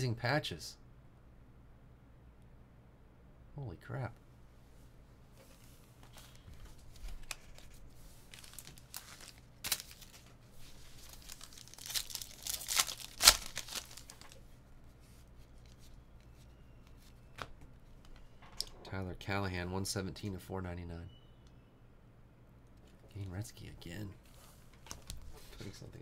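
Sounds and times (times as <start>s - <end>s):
wrapper tearing and crinkling: 7.0s - 14.4s.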